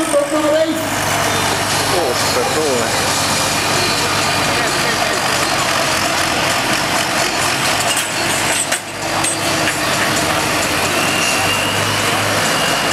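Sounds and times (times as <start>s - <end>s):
steady high tone: 0.0s - 12.9s
tractor diesel engine running: 0.0s - 12.9s.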